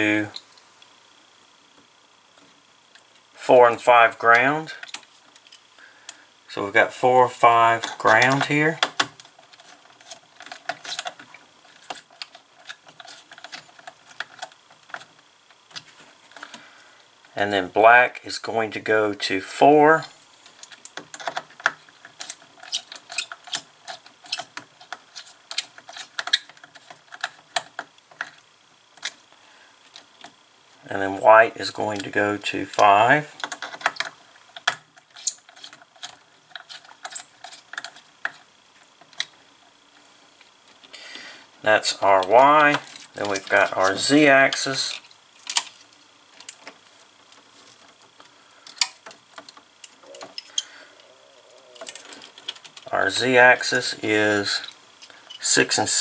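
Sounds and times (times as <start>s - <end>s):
wires clicking into screw terminals: 7.9s - 16.6s, 20.4s - 28.4s, 31.9s - 39.4s, 42.2s - 50.7s, 51.5s - 55.6s.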